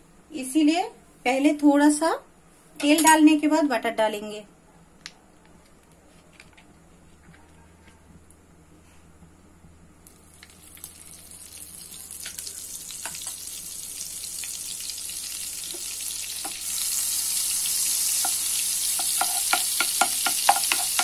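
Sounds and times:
butter sizzling in oil: 10.1s - 21.0s.

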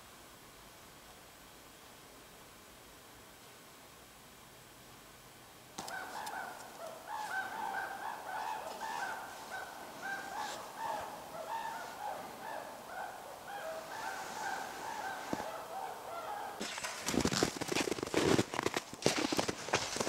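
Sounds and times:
birds calling: 5.8s - 17.3s.

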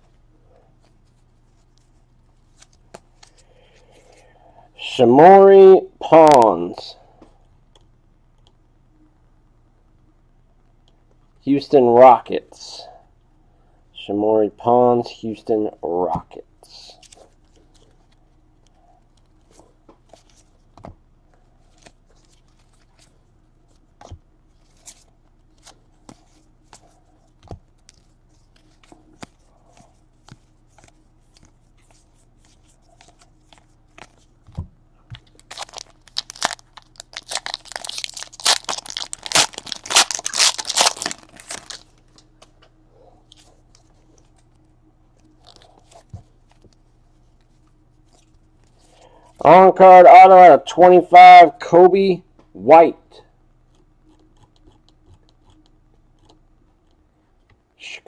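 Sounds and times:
card pack wrapper tearing: 35.4s - 41.9s.

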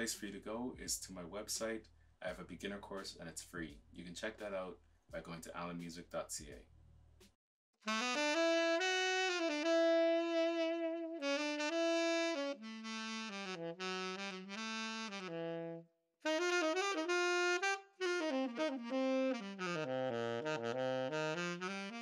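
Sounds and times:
tenor saxophone playing: 7.8s - 22.0s.

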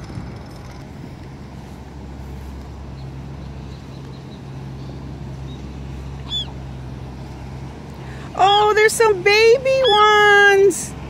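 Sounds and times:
constant low hum: 0.0s - 11.0s
steady low rumble: 0.0s - 11.0s
gull call: 6.2s - 6.6s.

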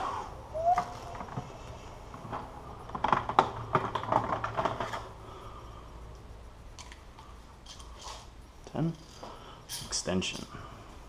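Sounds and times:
metal tools clinking and rattling: 8.8s - 10.6s.

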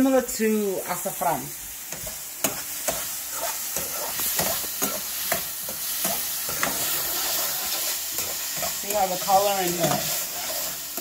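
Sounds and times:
vegetables sizzling in oil: 0.0s - 11.0s
metal spoon scraping pot: 6.0s - 11.0s.

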